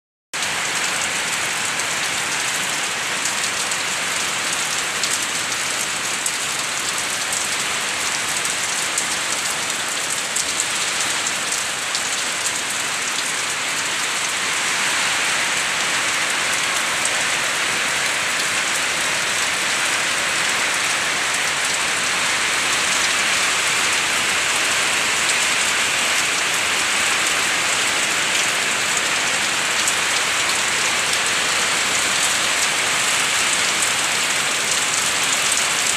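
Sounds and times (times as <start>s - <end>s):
heavy rain pouring: 0.4s - 35.9s.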